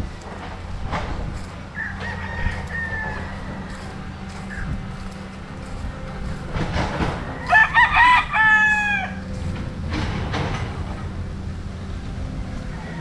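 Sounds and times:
rooster crowing: 0:01.4 - 0:06.4, 0:07.1 - 0:09.6, 0:12.3 - 0:13.0.

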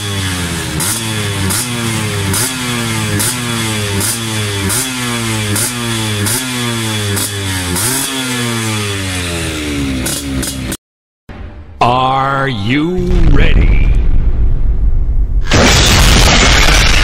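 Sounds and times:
two-stroke engine revving: 0:00.0 - 0:10.8.

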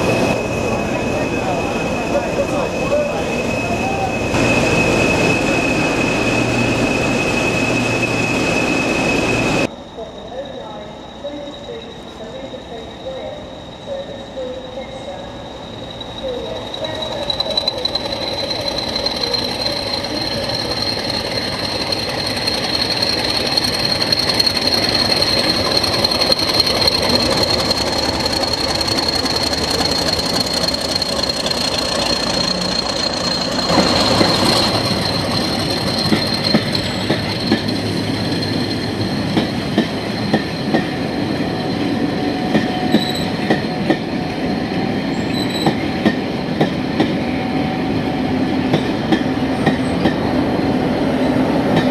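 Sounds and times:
diesel locomotive passing: 0:00.0 - 0:51.9
train wheels clickety-clack: 0:16.8 - 0:41.8, 0:42.4 - 0:47.4, 0:48.6 - 0:50.4, 0:51.6 - 0:51.9.

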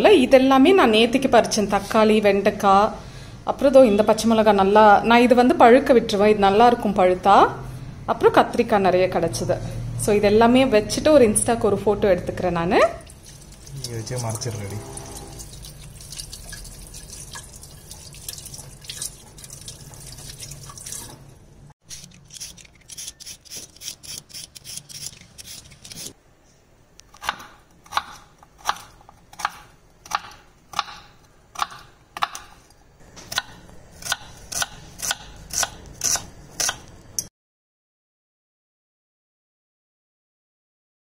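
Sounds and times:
peeler scraping radish: 0:21.8 - 0:26.2, 0:34.0 - 0:36.9
knife chopping on wooden board: 0:27.2 - 0:32.6, 0:33.2 - 0:36.8.

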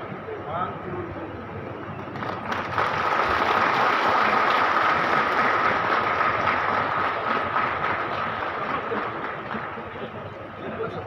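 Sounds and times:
crowd applauding: 0:02.0 - 0:10.3.

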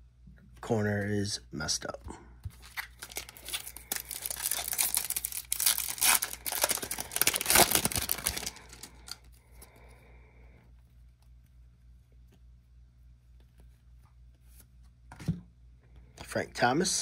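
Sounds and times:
plastic wrapper tearing and crinkling: 0:02.6 - 0:09.3.

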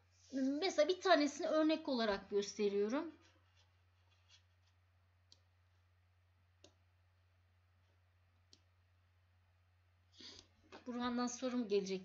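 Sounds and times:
low steady hum: 0:00.0 - 0:12.0
computer mouse clicks: 0:05.3 - 0:05.5, 0:06.6 - 0:06.8, 0:08.4 - 0:08.7.

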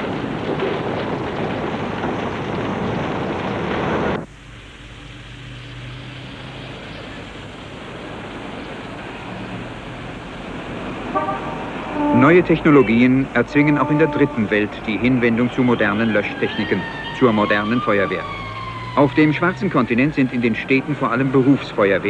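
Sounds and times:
loud rushing fire noise: 0:00.0 - 0:05.6.

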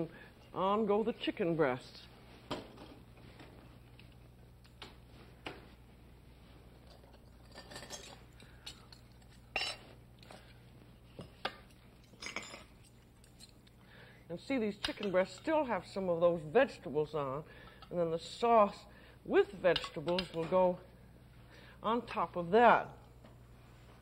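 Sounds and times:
low steady hum: 0:00.0 - 0:24.0
utensils clinking on metal pans: 0:06.9 - 0:09.9, 0:12.0 - 0:12.8, 0:19.7 - 0:20.4.

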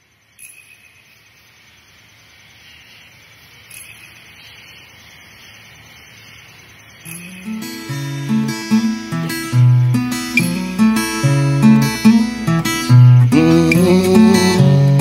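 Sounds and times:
acoustic guitar music: 0:07.0 - 0:15.0.

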